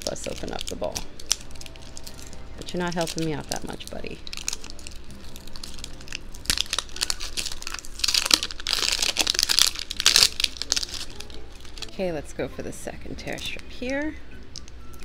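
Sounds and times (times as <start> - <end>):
plastic wrap crinkling: 0.0 - 12.0.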